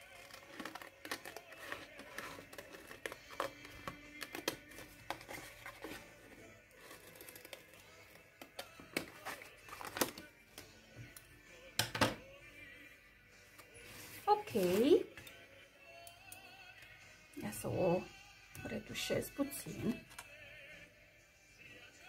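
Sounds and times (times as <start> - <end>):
soft background music: 0.0 - 22.0
scissors snipping paper: 0.1 - 6.0
paper rustling: 4.3 - 7.8.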